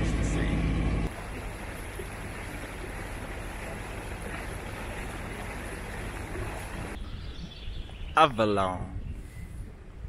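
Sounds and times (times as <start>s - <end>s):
boat engine running: 0.0s - 7.0s
wind: 0.0s - 10.0s
water washing: 1.1s - 7.0s.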